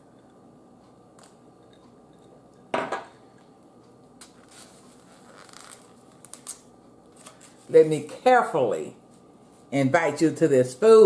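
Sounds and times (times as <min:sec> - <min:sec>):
glass tumbler knocking on table: 0:02.8 - 0:03.1.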